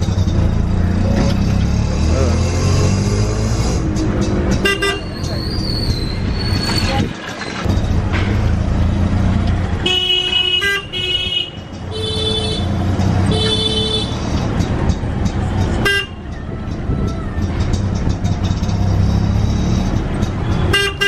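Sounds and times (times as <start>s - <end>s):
auto-rickshaw engine droning: 0.0s - 21.0s
street traffic: 0.0s - 21.0s
vehicle horns honking: 4.5s - 5.5s, 9.8s - 14.4s, 15.8s - 16.2s, 20.5s - 21.0s.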